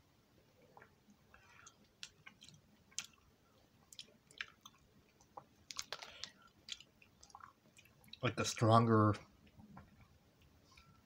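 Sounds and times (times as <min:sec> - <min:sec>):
mouth chewing clicks and smacks: 0:00.8 - 0:08.2.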